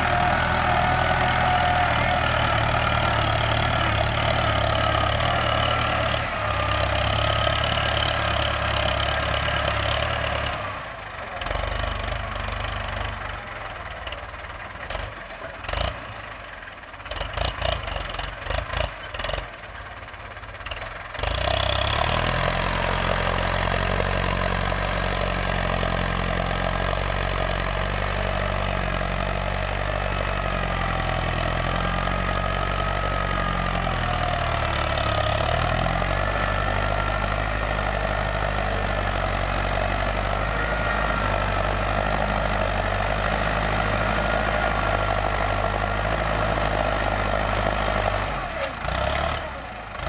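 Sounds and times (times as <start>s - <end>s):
tractor diesel engine running: 0.0s - 50.0s.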